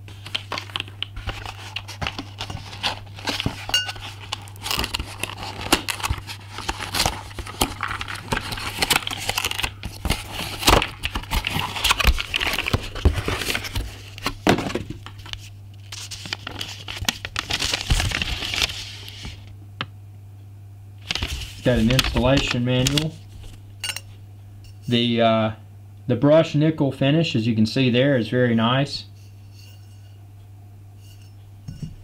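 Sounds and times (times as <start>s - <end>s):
cardboard and paper rustling: 0.0s - 19.5s, 21.0s - 23.6s.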